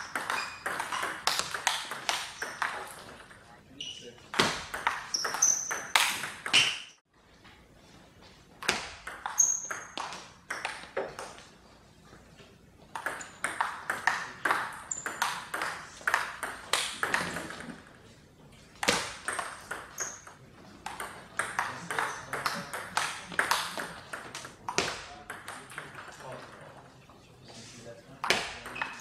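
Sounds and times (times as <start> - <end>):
ping-pong ball clicking: 12.9 - 17.7, 18.8 - 26.2.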